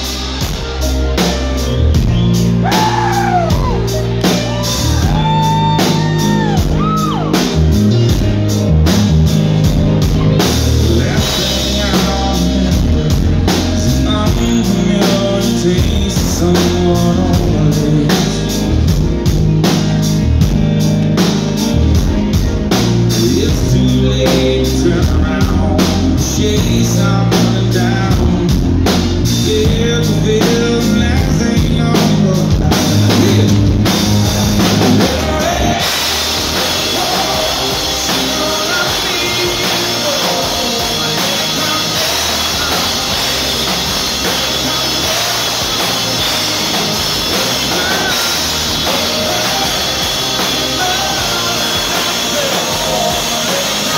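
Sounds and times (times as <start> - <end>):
live country band playing: 0.0 - 53.9
man singing: 10.0 - 20.5, 21.8 - 53.9.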